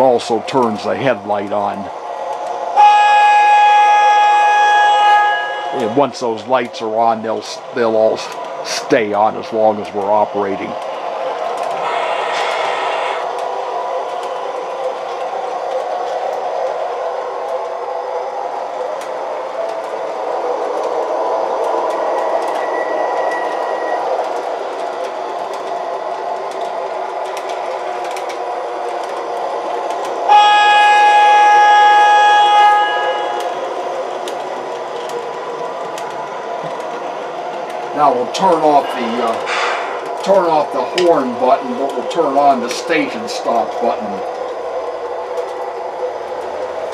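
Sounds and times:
model streetcar running noise: 0.0 - 46.9
model streetcar horn chord: 2.8 - 6.1, 30.3 - 33.6.

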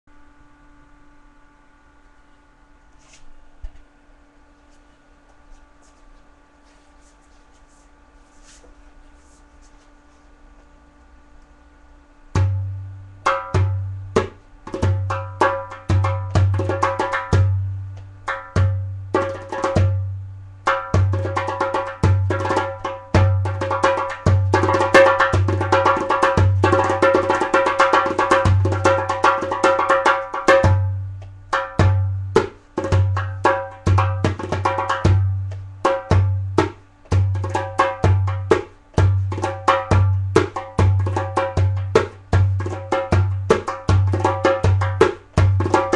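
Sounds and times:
hand drum playing: 12.3 - 45.9.

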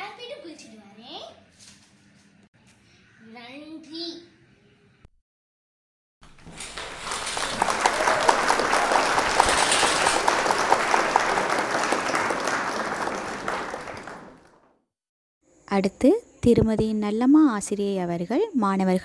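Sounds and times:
crowd applauding: 6.2 - 14.7.

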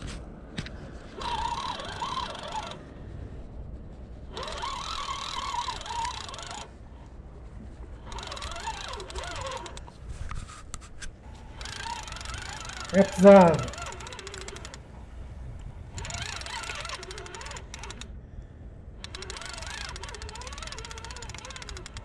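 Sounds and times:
fishing reel gears whining: 1.1 - 3.1, 4.3 - 6.8, 7.8 - 10.0, 11.3 - 14.9, 15.9 - 18.1, 19.0 - 22.0.

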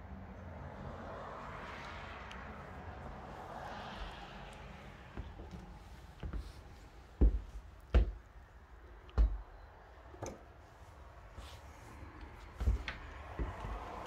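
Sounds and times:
footsteps on carpet: 4.0 - 8.3, 12.4 - 14.0.

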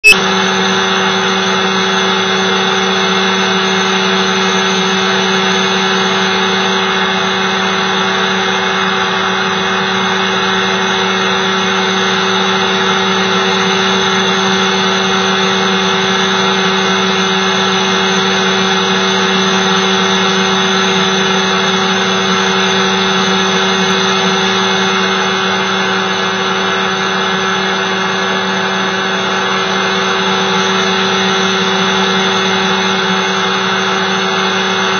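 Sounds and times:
small aircraft engine droning: 0.0 - 34.9.

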